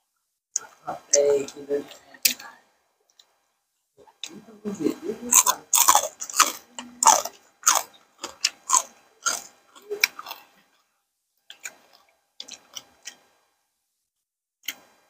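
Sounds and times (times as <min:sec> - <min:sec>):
wet chewing and crunching: 0:05.3 - 0:10.8, 0:11.5 - 0:13.3.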